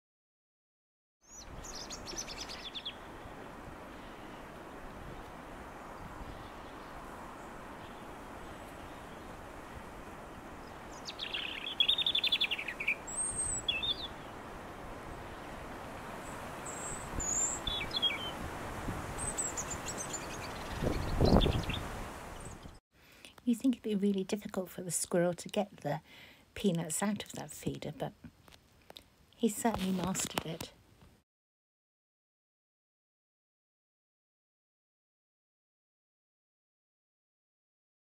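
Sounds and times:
robin singing: 0:01.3 - 0:03.3, 0:10.6 - 0:14.4, 0:16.2 - 0:18.4, 0:19.1 - 0:22.8.

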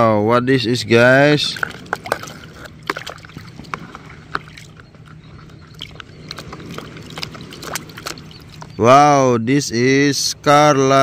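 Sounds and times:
steady low hum: 0:00.0 - 0:11.0
liquid sloshing in a plastic bowl: 0:01.4 - 0:08.7
small splashes: 0:01.4 - 0:08.8.

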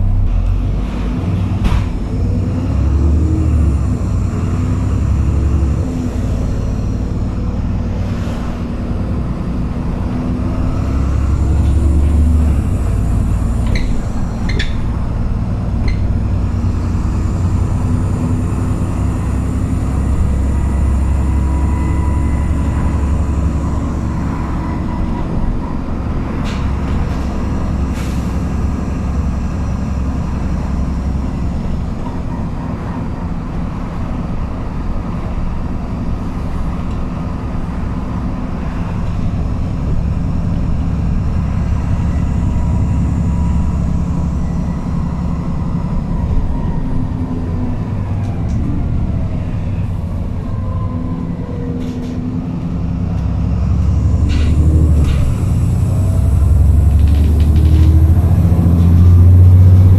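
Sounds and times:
bus engine drone: 0:00.0 - 0:59.9
road noise: 0:00.0 - 0:59.9.

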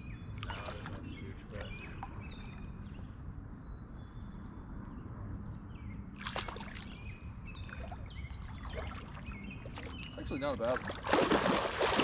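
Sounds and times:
fish splashing in water: 0:10.8 - 0:12.0.

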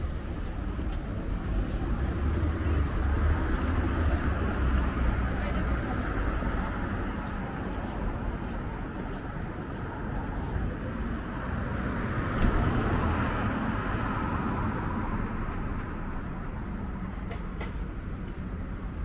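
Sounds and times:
vehicle passing by: 0:01.4 - 0:16.3.

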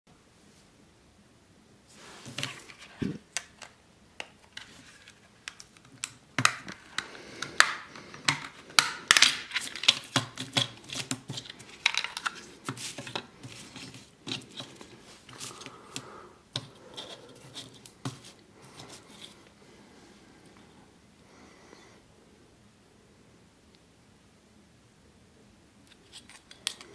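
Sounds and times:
plastic clicks and snaps: 0:05.4 - 0:12.4.

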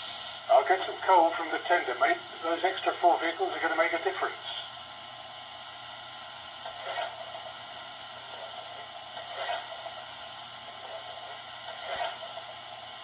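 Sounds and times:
steam puffs: 0:00.0 - 0:00.5
steady steam hiss: 0:00.0 - 0:06.6.

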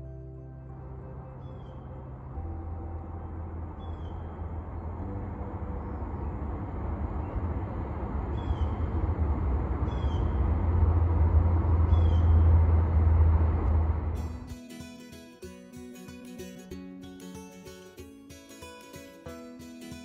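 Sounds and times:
guitar music: 0:00.0 - 0:07.9, 0:14.2 - 0:20.0
highway traffic rumble: 0:00.0 - 0:14.6.

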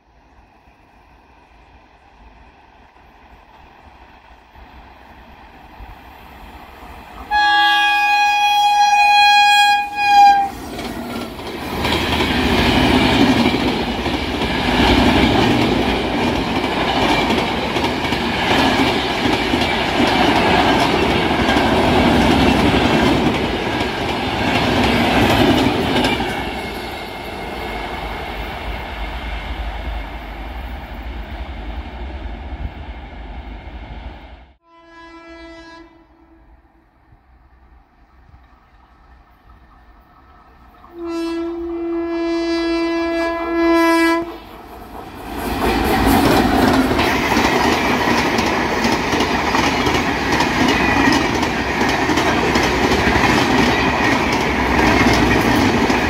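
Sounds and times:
train horn blast: 0:07.3 - 0:10.6, 0:34.6 - 0:36.8, 0:40.9 - 0:44.4
train wheels clattering on rails: 0:10.6 - 0:31.2, 0:44.4 - 0:56.0.

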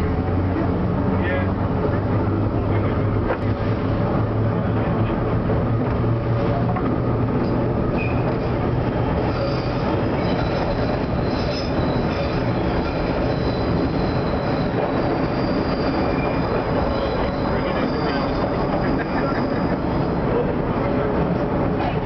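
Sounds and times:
train wheels rumbling: 0:00.0 - 0:22.0
high-pitched wheel squeal: 0:07.9 - 0:08.5, 0:09.2 - 0:20.2.

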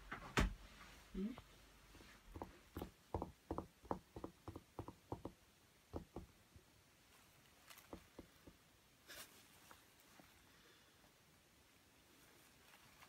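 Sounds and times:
soft taps and thumps on carpet: 0:02.0 - 0:06.3.

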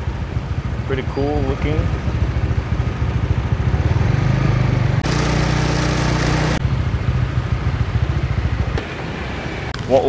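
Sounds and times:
scooter engine running: 0:00.0 - 0:10.0
wind and road noise: 0:00.0 - 0:10.0.

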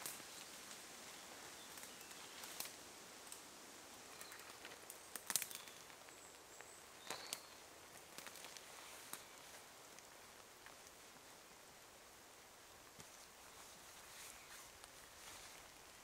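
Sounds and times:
rain and wind hiss: 0:00.0 - 0:16.0
bird chirps: 0:05.4 - 0:07.6
tarp fabric rustling and crinkling: 0:07.0 - 0:11.2, 0:12.9 - 0:16.0.

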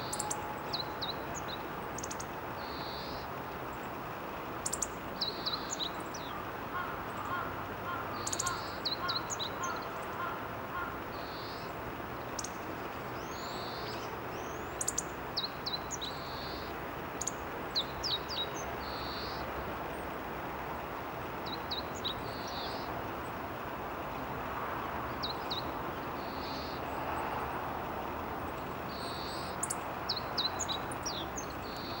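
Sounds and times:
bird repeating lower call: 0:00.0 - 0:01.2
soft blurred high bird calls: 0:00.0 - 0:03.3, 0:04.6 - 0:11.8
background hiss: 0:00.0 - 0:32.0.

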